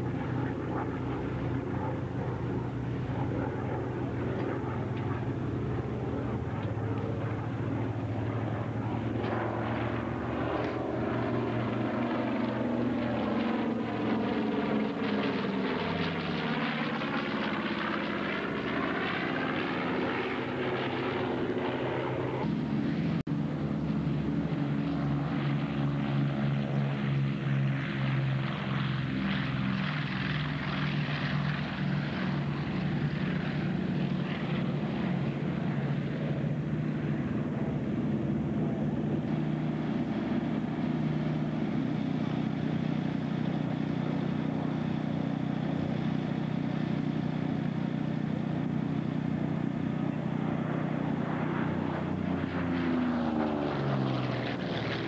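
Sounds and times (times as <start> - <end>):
propeller aircraft engine drone: 0.0 - 55.0.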